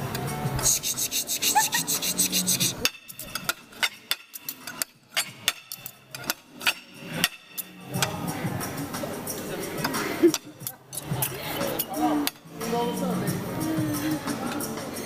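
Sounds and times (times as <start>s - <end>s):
knife scraping against fork: 0.6s - 7.8s
knife and fork clicking: 1.1s - 8.1s.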